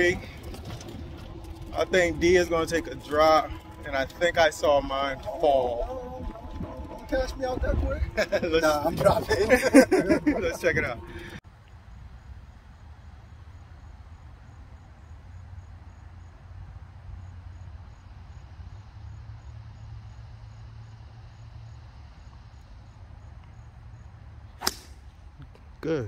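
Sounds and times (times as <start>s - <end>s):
steady low rumble: 0.0s - 19.6s
faint insect chirping: 11.5s - 24.6s
golf club striking ball: 24.6s - 25.1s.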